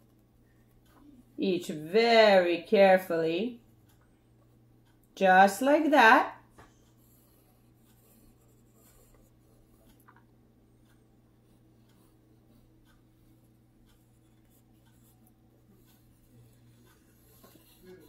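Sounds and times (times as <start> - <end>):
low steady hum: 0.0 - 18.0
pencil scratching on paper: 6.7 - 10.0, 10.9 - 18.0.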